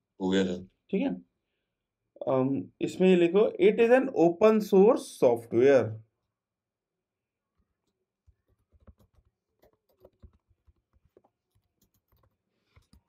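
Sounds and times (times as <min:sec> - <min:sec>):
typing on keyboard: 0:08.2 - 0:13.0.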